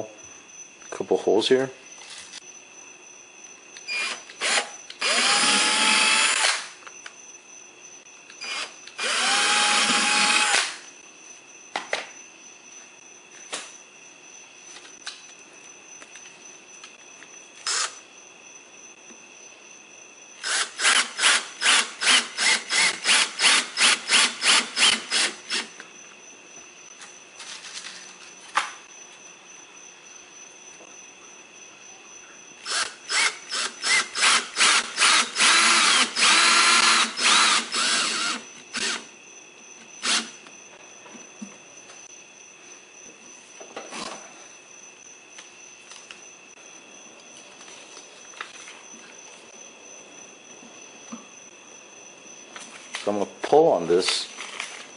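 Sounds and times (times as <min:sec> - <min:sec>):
cordless drill running: 0:03.9 - 0:06.7, 0:08.4 - 0:10.8, 0:17.6 - 0:18.0, 0:20.4 - 0:25.7, 0:32.6 - 0:39.1, 0:40.0 - 0:40.3.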